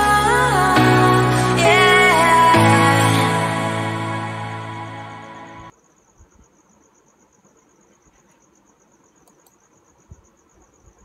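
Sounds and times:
soft clicks: 0:09.2 - 0:09.6.

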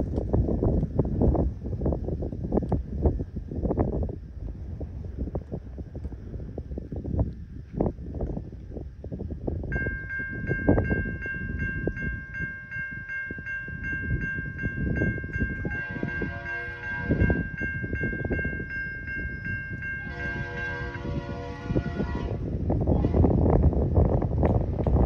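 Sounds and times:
gusty low rumble: 0:00.0 - 0:25.0
crossing bell dinging: 0:09.7 - 0:22.2
locomotive horn blast: 0:15.6 - 0:17.4, 0:20.0 - 0:23.4.

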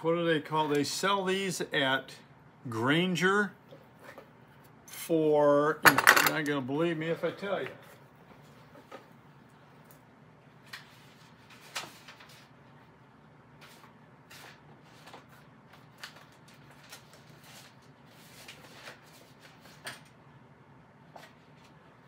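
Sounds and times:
paper rustling: 0:10.7 - 0:12.6, 0:13.6 - 0:20.1.

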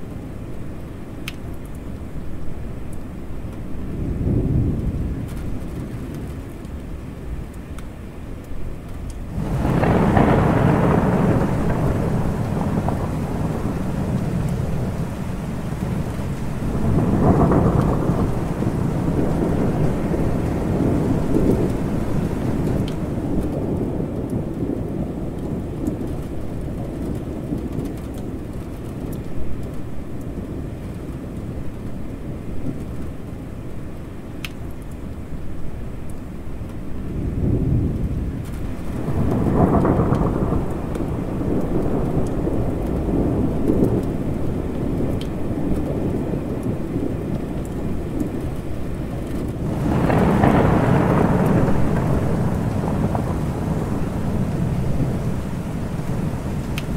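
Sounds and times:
steady rain: 0:00.0 - 0:56.9
low thunder rumbling: 0:03.5 - 0:07.2, 0:09.2 - 0:33.2, 0:36.9 - 0:56.9.

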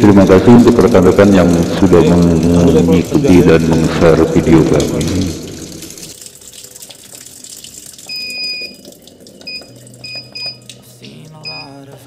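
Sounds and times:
water pouring into washing machine: 0:00.0 - 0:12.0
long electronic beep: 0:11.4 - 0:11.8.

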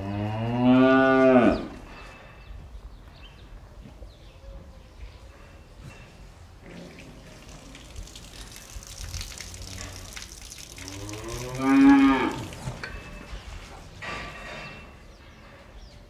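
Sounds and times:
cow mooing: 0:00.0 - 0:01.8, 0:10.8 - 0:12.8.

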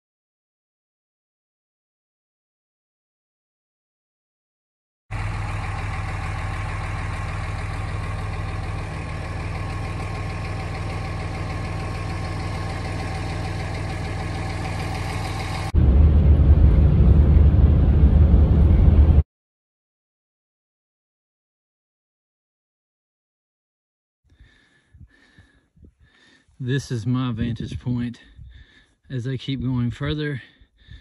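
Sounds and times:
car engine hum from inside cabin: 0:05.1 - 0:19.2.

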